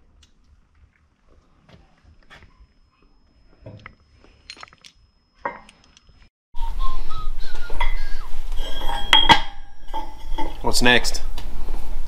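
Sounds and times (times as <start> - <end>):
steel parts clinking: 3.8 - 6.3, 7.8 - 11.2
metal-on-metal clanks: 7.8 - 11.2.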